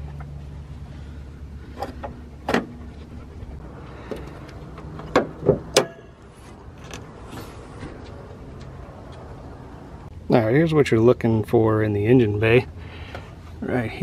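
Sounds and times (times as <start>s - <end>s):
steady low hum: 0.0s - 14.0s
hood release clunk: 1.7s - 2.9s
hood latch clicks and clunks: 1.8s - 2.8s, 4.7s - 6.1s.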